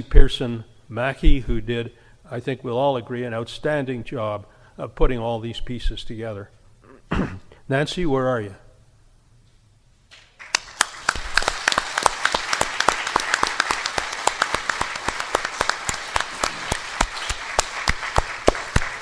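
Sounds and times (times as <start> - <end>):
audience applauding: 10.4 - 19.0.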